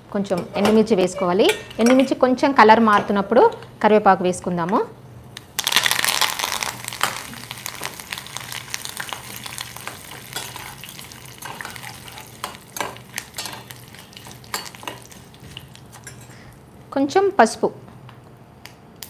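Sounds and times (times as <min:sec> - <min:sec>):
spices sizzling in oil: 0:05.6 - 0:16.4.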